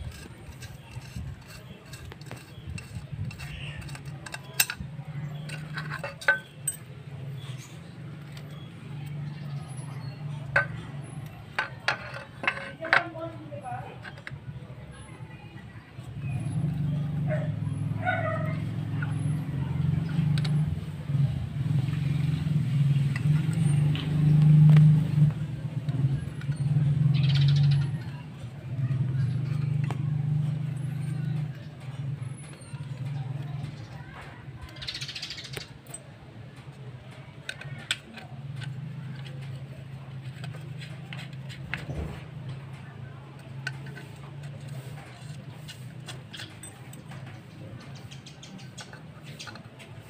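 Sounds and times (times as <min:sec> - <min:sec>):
metallic clicks and taps: 0:00.1 - 0:06.9, 0:35.5 - 0:39.6.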